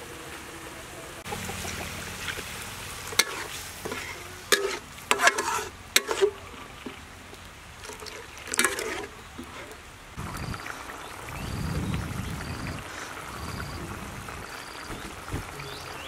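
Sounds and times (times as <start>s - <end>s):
food sizzling: 1.2s - 16.0s
spatula scraping metal wok: 1.6s - 7.0s, 7.8s - 9.8s.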